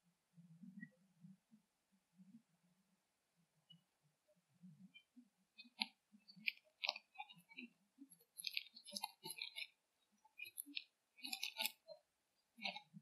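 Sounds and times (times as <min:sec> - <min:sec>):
munching and crunching: 0:08.3 - 0:09.7, 0:10.3 - 0:11.8, 0:12.6 - 0:12.9.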